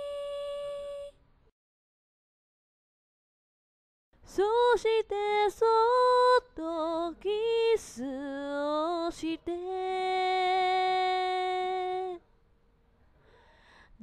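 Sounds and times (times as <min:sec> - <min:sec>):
woman singing: 0:00.0 - 0:01.2, 0:04.3 - 0:12.2.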